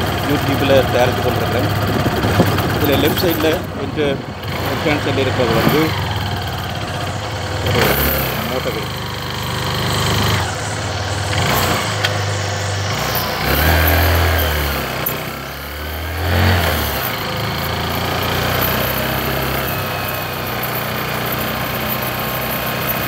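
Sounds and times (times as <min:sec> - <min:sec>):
motorcycle engine running: 0:00.0 - 0:23.0
steady rushing noise: 0:00.9 - 0:07.9.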